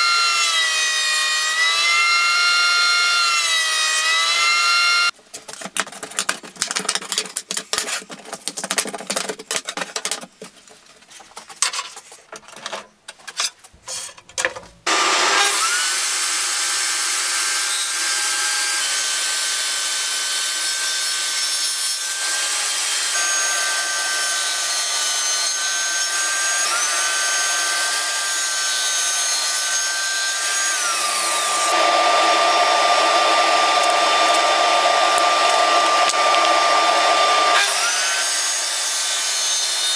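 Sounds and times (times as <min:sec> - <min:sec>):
wooden strips clattering: 0:05.2 - 0:14.8
table saw ripping wood: 0:14.8 - 0:39.9
dust extractor rushing: 0:14.9 - 0:15.5, 0:31.7 - 0:37.6.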